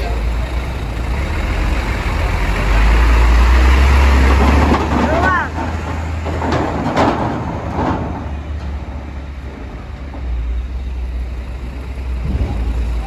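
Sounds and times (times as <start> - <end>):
diesel truck engine rumble: 0.0 - 13.0
clatter on steel ramp: 4.2 - 10.8, 12.1 - 13.0.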